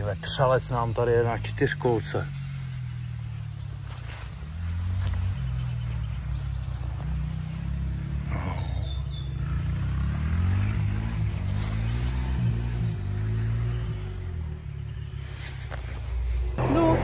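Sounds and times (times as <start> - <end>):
quad bike engine revving: 6.5 - 14.6.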